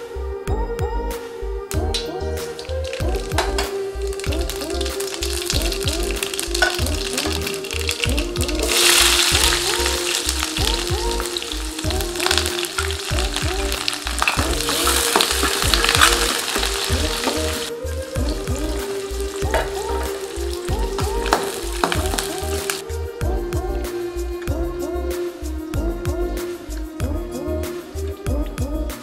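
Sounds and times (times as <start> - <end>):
background music with steady beat: 0.0 - 29.0
shallots sizzling in hot oil: 2.4 - 22.8.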